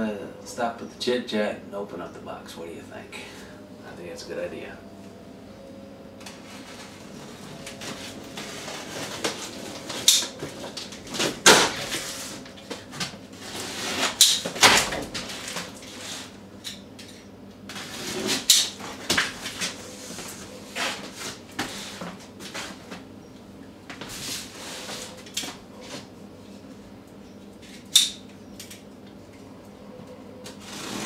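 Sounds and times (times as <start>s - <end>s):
cardboard scraping and rustling: 6.3s - 14.2s
packing tape ripping: 13.4s - 16.8s, 30.5s - 31.0s.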